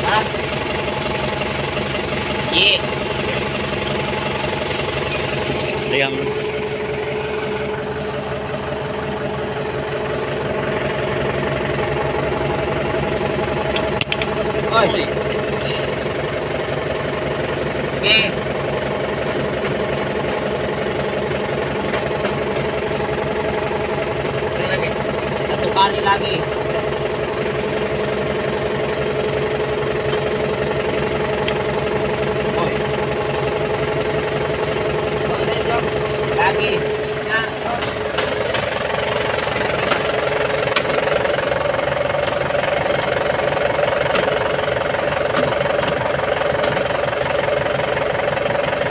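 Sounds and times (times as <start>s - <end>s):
tractor diesel engine idling: 0.0s - 48.9s.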